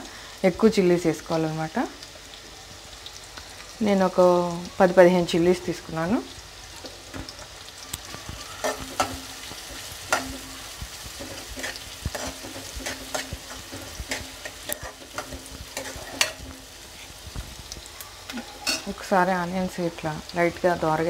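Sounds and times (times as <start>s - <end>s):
onions sizzling in hot oil: 0.0s - 21.0s
steel spoon scraping pan: 8.6s - 17.2s, 18.3s - 19.0s.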